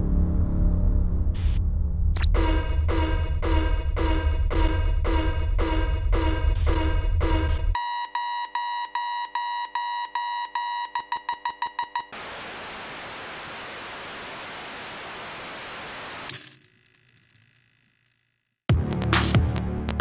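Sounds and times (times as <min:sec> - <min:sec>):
electronic alarm beeping: 0:02.3 - 0:12.2
static hiss: 0:12.2 - 0:16.4.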